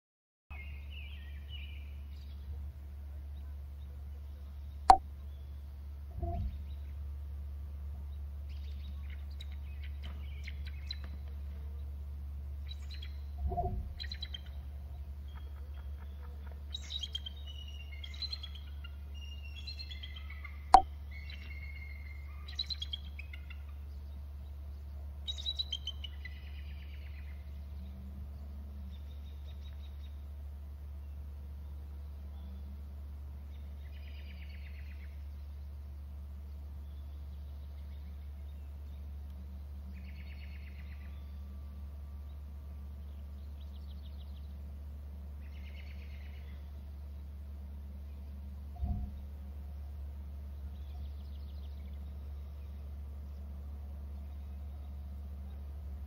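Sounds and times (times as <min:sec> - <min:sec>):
steady low hum: 0:00.5 - 0:56.0
birds calling and chirping: 0:12.6 - 0:56.0.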